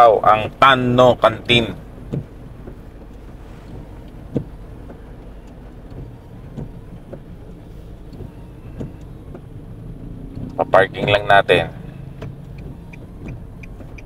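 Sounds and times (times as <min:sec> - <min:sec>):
car engine and tyre rumble: 0:00.0 - 0:14.0
soft knocks: 0:02.0 - 0:05.1.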